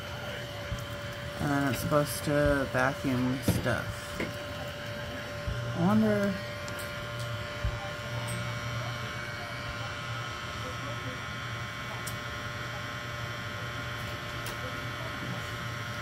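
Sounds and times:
desktop vacuum humming: 0:00.0 - 0:16.0.

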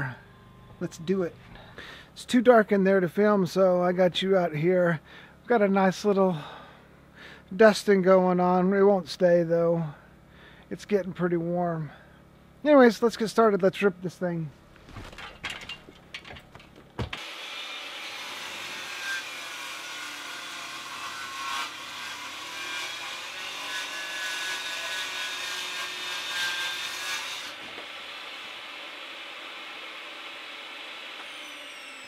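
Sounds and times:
faint high blade whine: 0:00.0 - 0:02.5, 0:31.0 - 0:32.0
table saw cutting wood: 0:17.1 - 0:32.0.

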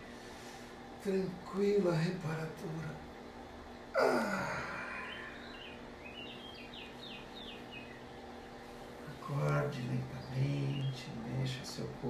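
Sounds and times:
man sighing: 0:03.9 - 0:05.4
bird chirping: 0:04.8 - 0:08.6, 0:09.6 - 0:11.4.

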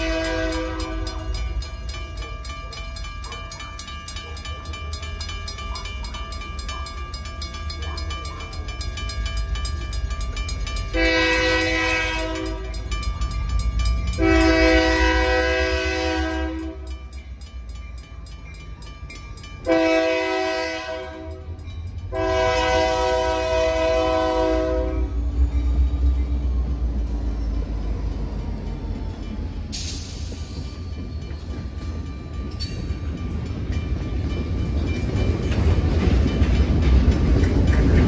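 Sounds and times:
locomotive air horn blasts: 0:00.0 - 0:01.4, 0:10.9 - 0:12.8, 0:14.2 - 0:16.9, 0:19.7 - 0:21.5, 0:22.1 - 0:25.2
crossing bells ringing: 0:00.0 - 0:38.0
locomotive engine rumbling: 0:00.0 - 0:38.0.

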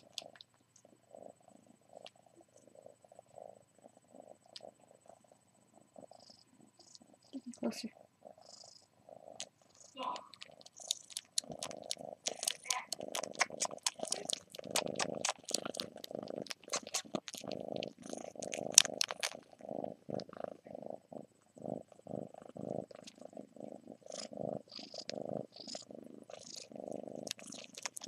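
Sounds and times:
kitten purring: 0:00.0 - 0:28.0
sharp clicks: 0:10.1 - 0:19.4.

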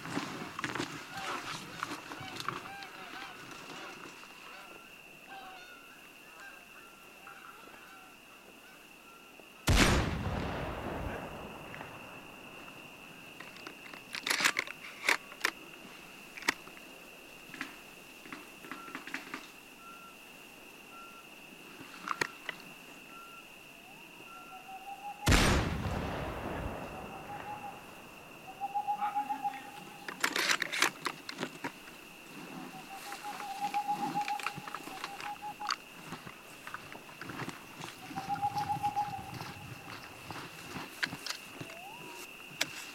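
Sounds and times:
drawn-out hoots: 0:02.2 - 0:09.2, 0:23.1 - 0:25.3, 0:26.8 - 0:30.6, 0:32.3 - 0:35.8, 0:37.8 - 0:40.8, 0:41.5 - 0:42.3
rifle shot echoing: 0:09.7 - 0:12.6, 0:25.3 - 0:28.1
short faint calls: 0:26.1 - 0:30.4, 0:32.5 - 0:35.8, 0:37.8 - 0:40.8.

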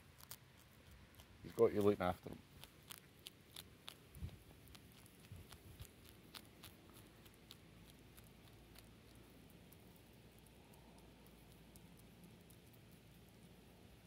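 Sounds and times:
hedgehog crunching biscuits: 0:00.0 - 0:14.0.

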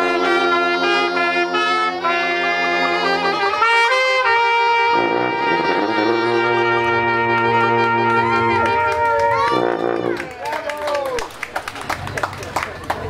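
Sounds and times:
low sousaphone note: 0:00.0 - 0:10.2
jazz band playing: 0:00.0 - 0:10.4.

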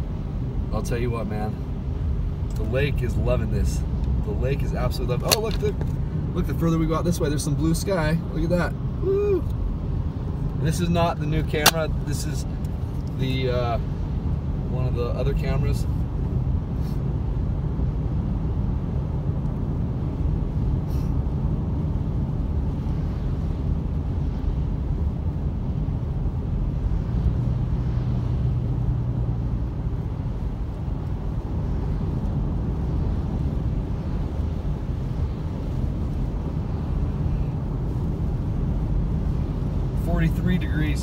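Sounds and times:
engine and tyre rumble: 0:00.0 - 0:41.0
hiss of wet pavement: 0:20.8 - 0:21.2
rain on windshield: 0:29.2 - 0:41.0.

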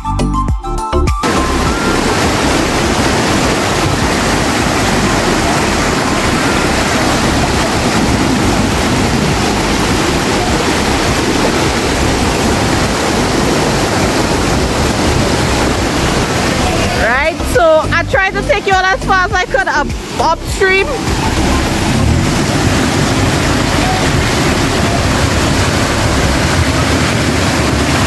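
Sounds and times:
floodwater rushing over rocks: 0:01.2 - 0:28.0.

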